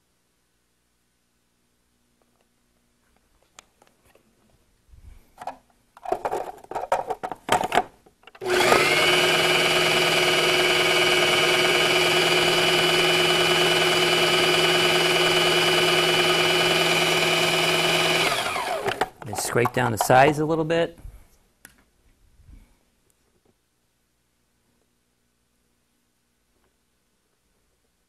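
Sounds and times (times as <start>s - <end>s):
knocks and clatters: 5.4s - 8.4s, 18.8s - 20.4s
food processor motor running: 8.4s - 19.2s.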